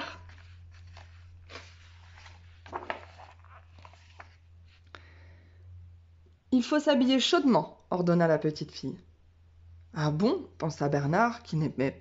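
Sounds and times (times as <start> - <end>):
faint rustling: 0.0 - 5.0
low electrical hum: 0.0 - 12.0.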